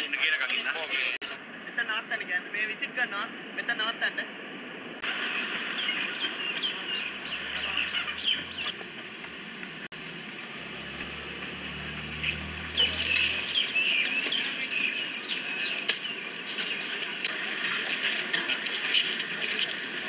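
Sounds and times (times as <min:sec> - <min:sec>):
birds chirping: 0:05.2 - 0:16.4
low engine rumble: 0:05.6 - 0:14.7.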